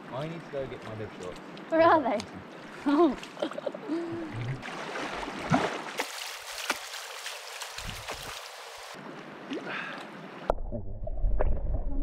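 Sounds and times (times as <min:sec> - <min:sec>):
river water lapping and gurgling: 0:00.0 - 0:10.5
person splashing in water: 0:04.3 - 0:09.8.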